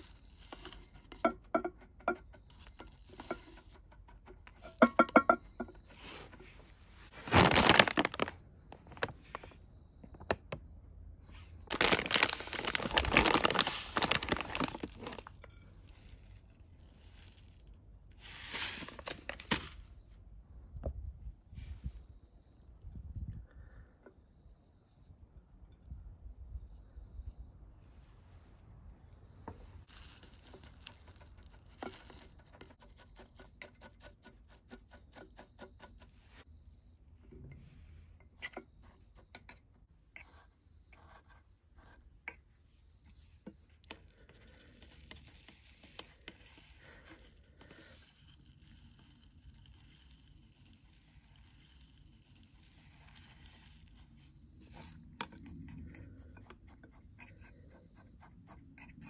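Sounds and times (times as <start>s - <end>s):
grit pouring into clay pot: 11.7s - 19.8s, 44.0s - 59.0s.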